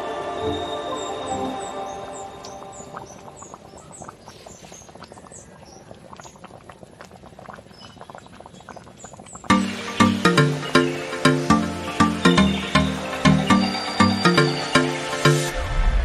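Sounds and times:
liquid boiling with popping bubbles: 2.4s - 15.5s.

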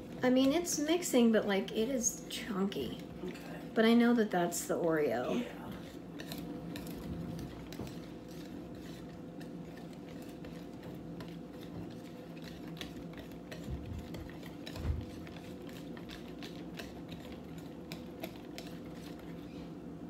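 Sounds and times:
whisk scraping a mixing bowl: 5.5s - 19.9s.

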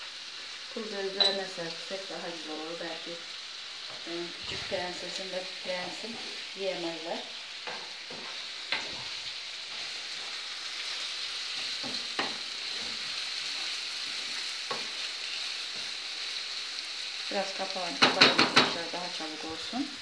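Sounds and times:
vegetables sizzling in oil: 0.0s - 20.0s
wooden spoon knocking against pan: 18.0s - 18.8s.

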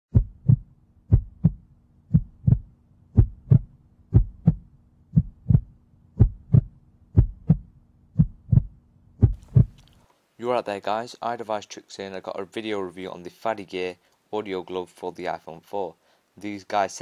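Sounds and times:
heartbeat thumps: 0.1s - 9.8s
faint steady hum: 0.2s - 17.0s.

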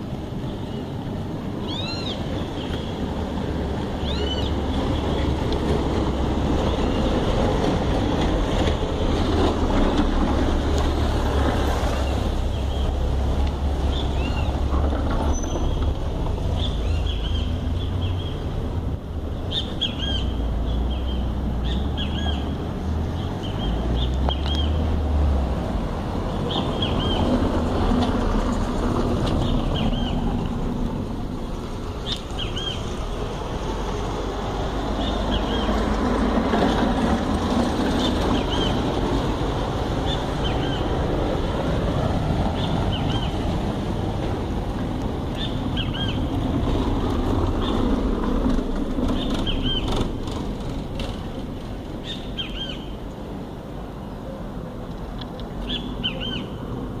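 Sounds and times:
low urban rumble: 0.0s - 57.0s
small birds chirping: 16.6s - 18.6s, 19.4s - 24.8s, 32.0s - 33.0s, 45.4s - 46.3s, 49.1s - 50.0s, 52.0s - 53.0s, 55.6s - 56.6s.

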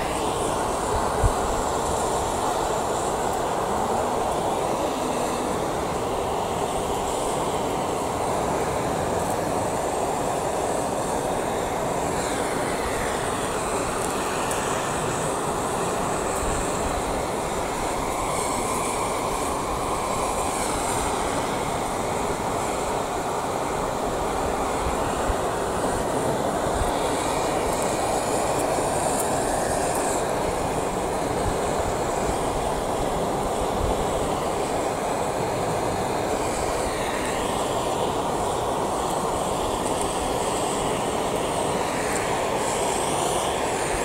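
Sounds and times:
gas torch flame hissing: 0.0s - 44.0s.

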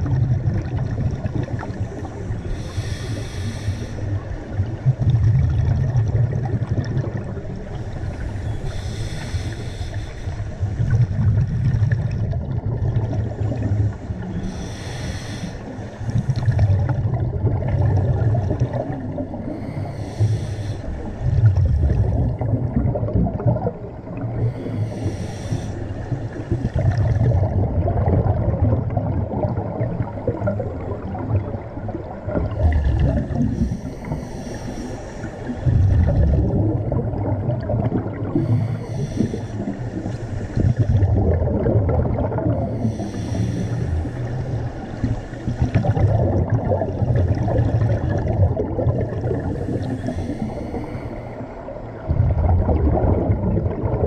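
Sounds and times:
rumble of exhaled bubbles: 0.0s - 54.0s
hissing regulator inhale: 2.4s - 4.2s, 8.0s - 10.9s, 13.5s - 16.5s, 19.4s - 21.2s, 24.4s - 26.5s, 33.3s - 36.0s, 38.3s - 40.8s, 42.6s - 46.0s, 49.4s - 51.7s.

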